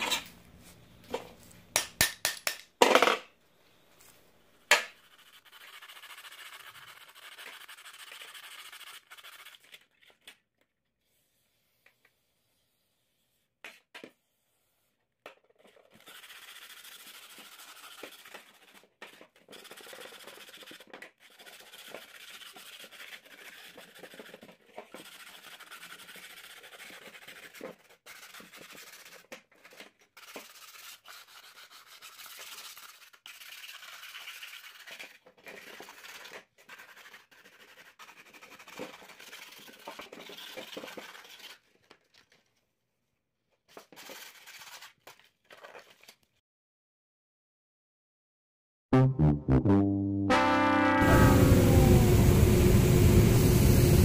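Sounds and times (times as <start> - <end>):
sandpaper rubbing on metal: 5.0 - 9.7, 16.0 - 18.8, 19.5 - 29.2, 30.2 - 41.7.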